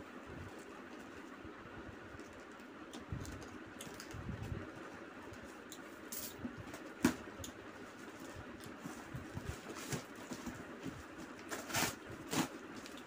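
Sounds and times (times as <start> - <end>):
paper packing rustling: 7.9 - 13.0.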